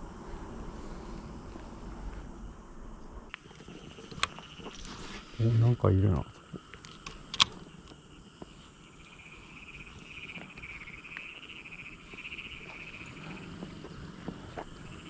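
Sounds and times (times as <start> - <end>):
wind rumble on microphone: 0.0 - 5.5
high-pitched animal chorus: 3.3 - 15.0.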